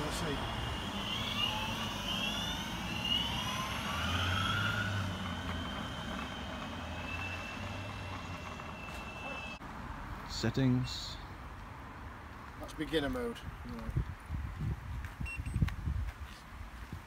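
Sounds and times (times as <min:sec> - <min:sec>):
electric skateboard motors whining: 0:00.0 - 0:09.6.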